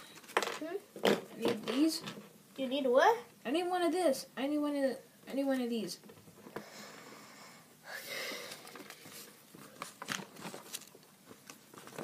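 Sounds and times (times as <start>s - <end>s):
paper rustling and crinkling: 8.5s - 12.0s.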